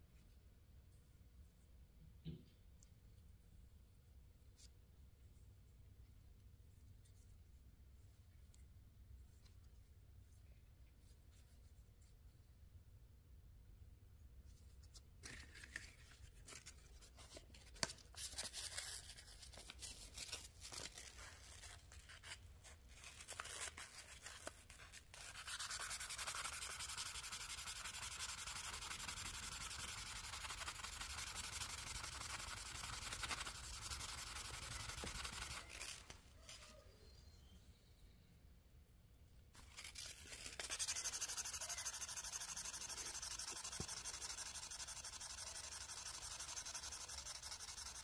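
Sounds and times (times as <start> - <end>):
sanding metal knife: 25.2 - 36.0, 39.8 - 48.0.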